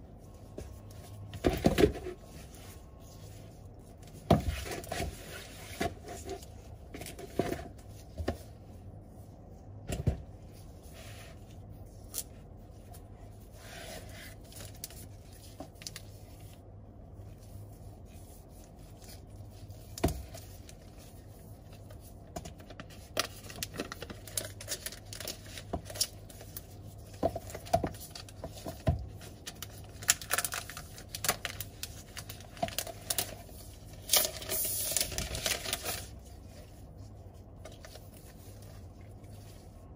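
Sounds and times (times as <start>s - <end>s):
packaging rustling and scraping: 22.5s - 39.9s.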